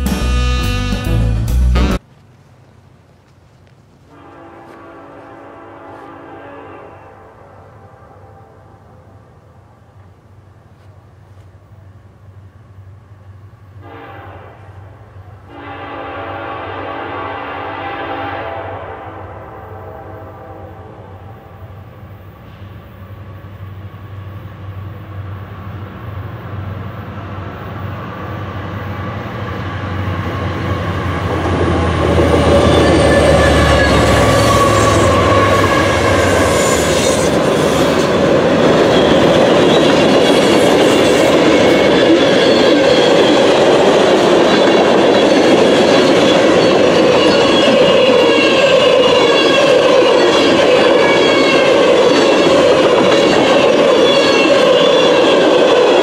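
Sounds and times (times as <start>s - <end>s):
diesel locomotive engine rumble: 0.0s - 56.0s
train wheels on rails: 21.2s - 56.0s
high wavering squeal: 29.6s - 56.0s.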